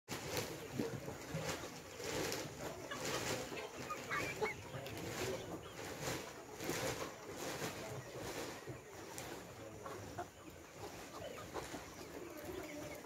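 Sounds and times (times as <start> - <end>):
chickens clucking: 0.1 - 13.0
high wavering chicken calls: 1.3 - 13.0.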